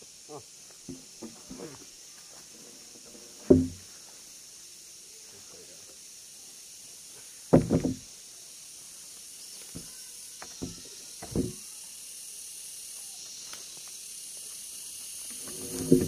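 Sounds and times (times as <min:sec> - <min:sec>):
steady high hiss: 0:00.0 - 0:16.0
wooden slabs knocking: 0:03.5 - 0:03.8, 0:07.5 - 0:08.0, 0:15.5 - 0:16.0.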